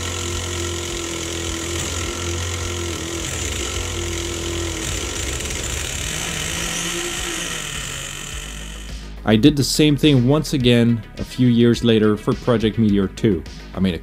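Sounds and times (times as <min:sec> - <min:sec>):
electric starter whine: 0:00.0 - 0:09.3.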